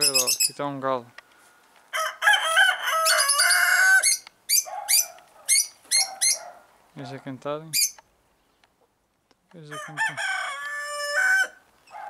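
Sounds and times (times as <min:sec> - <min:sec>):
rooster crowing: 0:01.9 - 0:04.2, 0:09.7 - 0:12.0.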